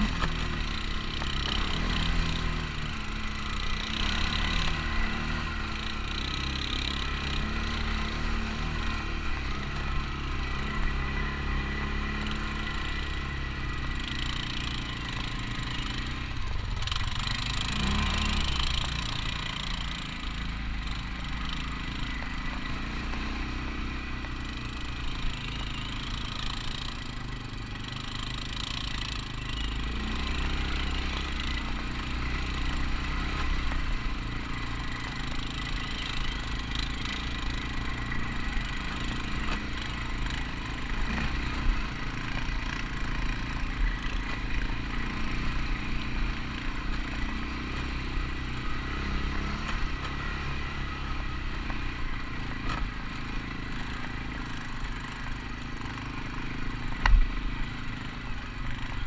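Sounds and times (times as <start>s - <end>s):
atv engine running: 0.0s - 59.0s.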